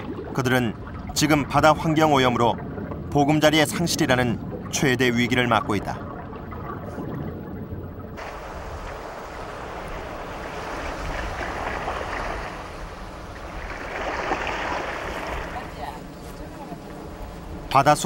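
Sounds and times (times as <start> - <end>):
rushing water: 0.0 - 18.0.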